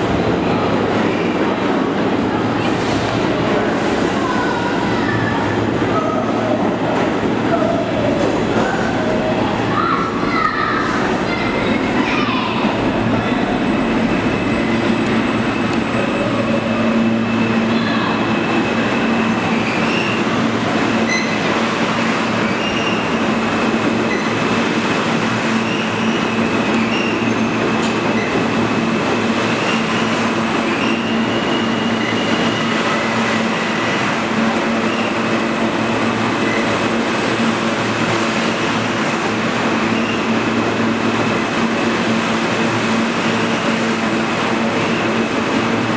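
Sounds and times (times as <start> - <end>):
subway train wheels rumbling: 0.0 - 45.9
high-pitched wheel squeal: 21.0 - 21.4, 22.4 - 23.1.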